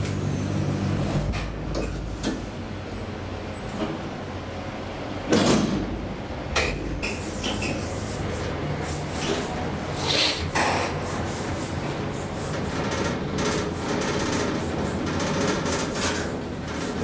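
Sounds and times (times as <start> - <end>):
low machinery hum: 0.0 - 17.0.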